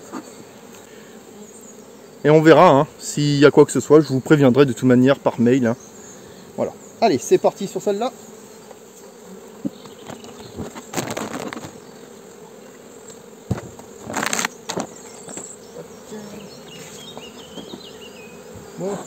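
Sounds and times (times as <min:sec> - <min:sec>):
bees buzzing: 0:00.0 - 0:19.0
knocks on hive: 0:13.4 - 0:15.6, 0:17.1 - 0:18.7.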